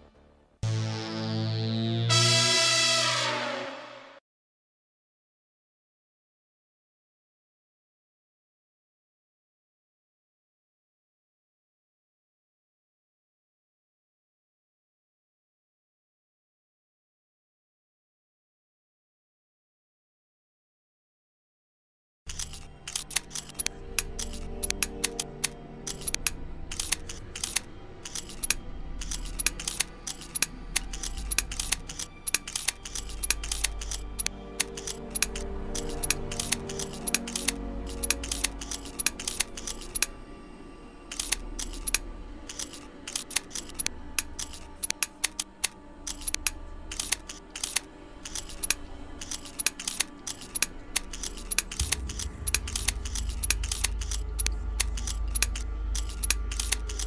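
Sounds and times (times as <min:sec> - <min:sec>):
keyboard typing clicks: 0:22.3 - 0:40.1, 0:41.1 - 0:57.0
soft background music: 0:22.3 - 0:57.0
low hum: 0:50.6 - 0:57.0.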